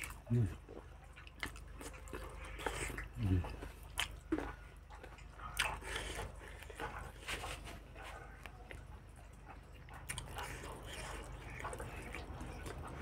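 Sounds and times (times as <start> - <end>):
chewing and mouth smacks: 0.0 - 13.0.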